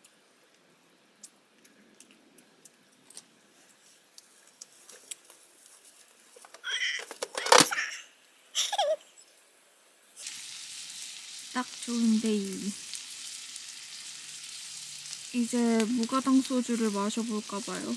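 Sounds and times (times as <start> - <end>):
small clicks and ticks: 0.0 - 6.6.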